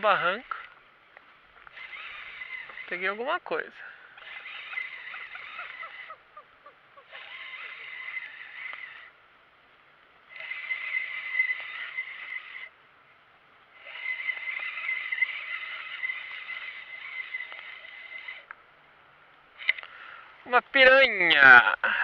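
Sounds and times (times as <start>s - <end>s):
fishing reel whirring: 1.6s - 9.2s, 10.3s - 12.8s, 13.7s - 18.5s, 19.6s - 19.9s.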